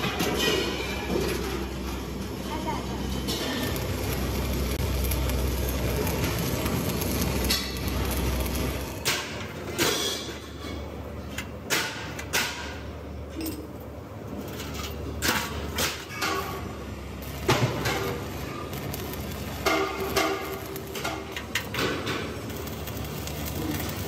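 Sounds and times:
low workshop hum: 0.0s - 24.0s
steel cylinder clanking: 3.0s - 11.0s, 14.5s - 24.0s.

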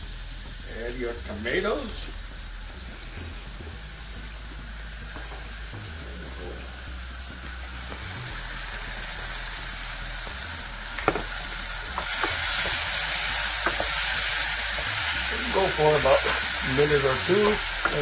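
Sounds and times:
vegetables sizzling in a pot: 0.0s - 18.0s.

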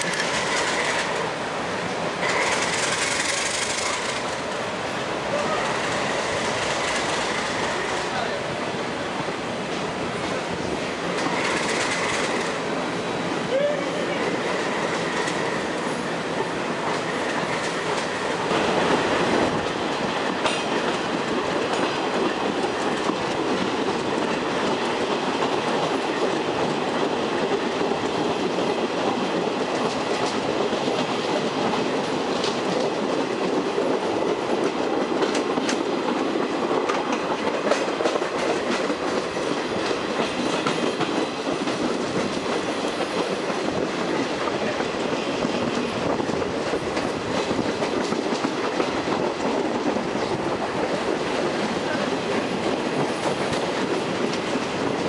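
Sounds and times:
sharp rail clicks: 0.0s - 1.3s, 2.2s - 4.6s, 5.3s - 8.2s, 11.0s - 12.8s, 16.8s - 27.6s, 29.6s - 33.5s, 34.6s - 55.0s
train wheels rushing on rails: 0.0s - 55.0s.

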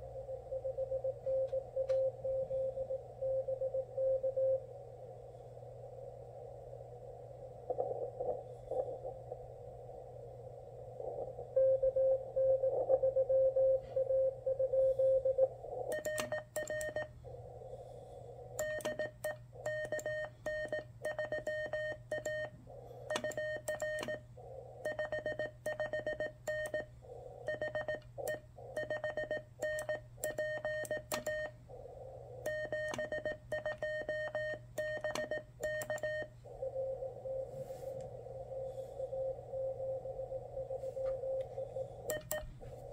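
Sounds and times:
receiver hiss: 0.0s - 42.9s
morse code tone: 18.6s - 31.6s.

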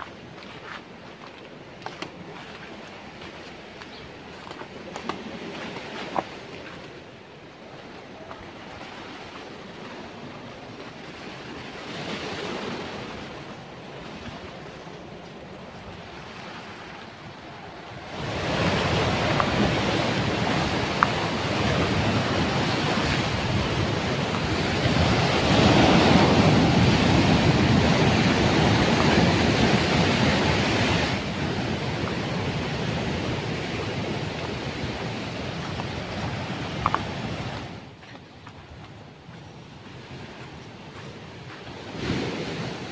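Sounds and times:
surf breaking on rocky shore: 4.6s - 38.0s.

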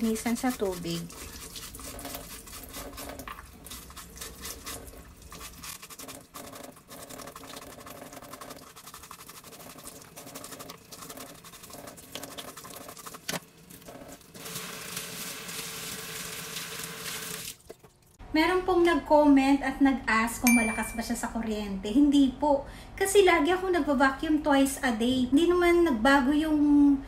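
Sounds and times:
toothbrush scrubbing filter: 0.0s - 16.4s
tap water running: 0.0s - 18.2s.

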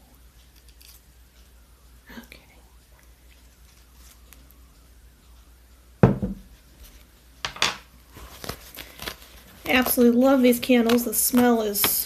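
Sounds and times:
faint handling sounds: 2.9s - 4.7s, 8.1s - 12.0s
loud thump: 6.0s - 6.4s.

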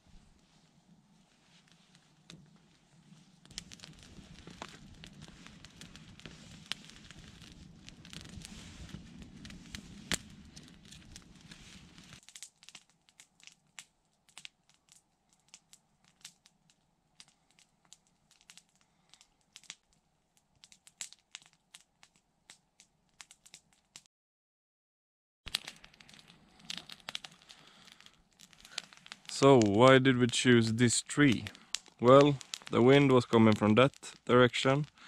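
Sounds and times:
rush of flame: 0.0s - 12.8s, 25.5s - 35.0s
campfire crackling and popping: 0.0s - 24.1s, 25.5s - 35.0s.

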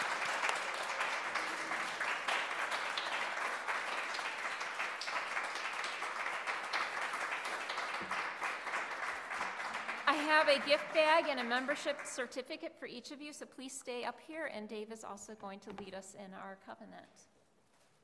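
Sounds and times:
crowd applauding: 0.0s - 12.2s.

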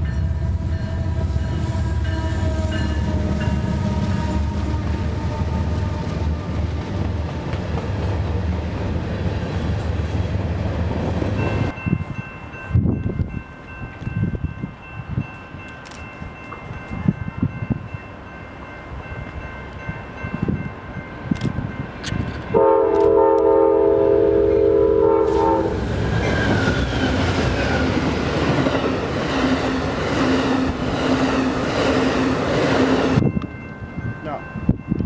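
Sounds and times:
locomotive air horn chord: 0.0s - 6.6s, 22.5s - 25.8s
train wheels rumbling on rail: 0.0s - 35.0s.

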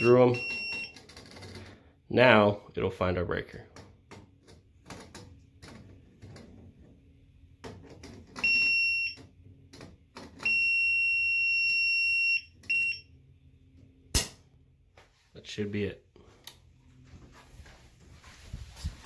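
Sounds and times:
high steady beep: 0.0s - 1.0s, 10.4s - 13.1s.

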